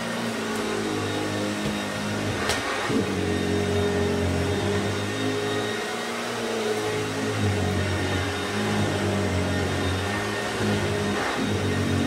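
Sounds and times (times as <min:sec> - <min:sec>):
vacuum cleaner running over carpet: 0:00.0 - 0:12.0.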